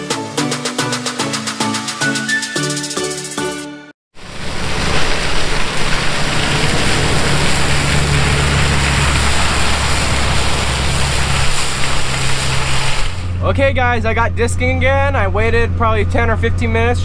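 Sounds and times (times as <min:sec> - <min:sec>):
shredder chopping stalks: 0:04.2 - 0:13.4
tractor engine under load: 0:04.2 - 0:16.8.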